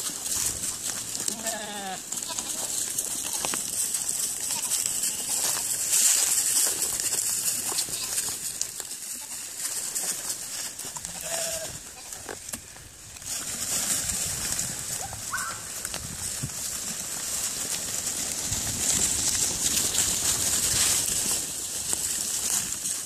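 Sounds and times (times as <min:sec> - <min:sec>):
sheep bleats: 0:01.2 - 0:03.5, 0:11.0 - 0:12.2.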